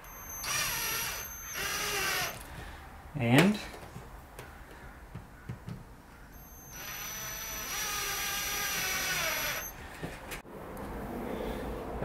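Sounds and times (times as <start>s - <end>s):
cordless drill whining: 0.0s - 2.6s, 6.4s - 10.1s.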